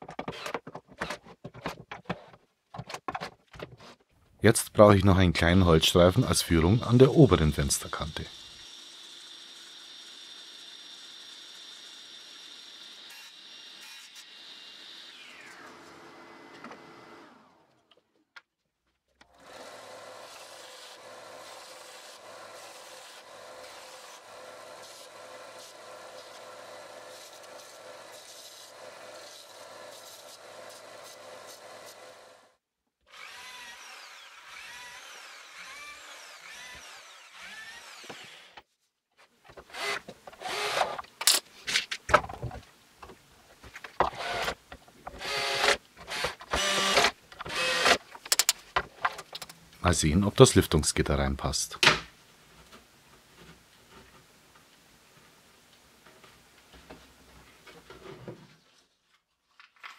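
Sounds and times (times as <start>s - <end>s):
drill driving screws into wood: 0.2s - 1.2s, 8.3s - 17.6s, 19.3s - 32.4s, 33.1s - 38.6s, 39.6s - 41.4s, 44.0s - 48.6s
table saw running: 11.7s - 17.5s, 33.2s - 38.6s.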